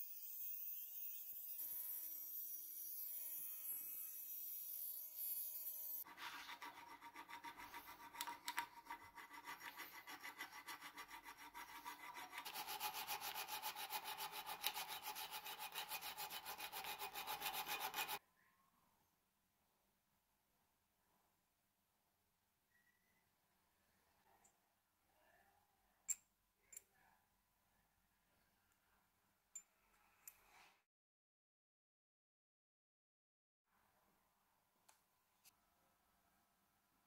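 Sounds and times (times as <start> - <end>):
rotary tool cutting metal: 0.0 - 18.2
hand file rasping on metal: 6.0 - 18.2.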